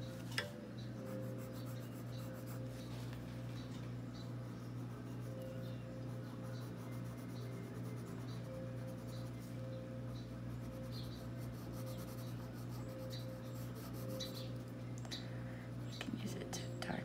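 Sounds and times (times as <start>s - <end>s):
steady low hum: 0.0s - 17.0s
pencil rubbing on paper: 10.6s - 14.7s.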